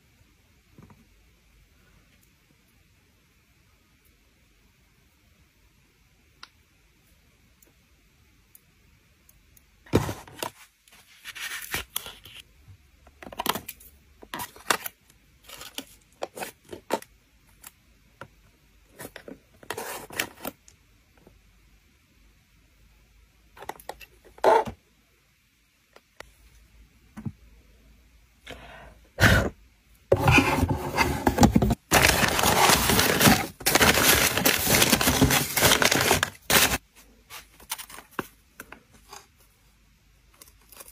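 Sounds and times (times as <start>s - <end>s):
paper crinkling: 30.2s - 38.4s.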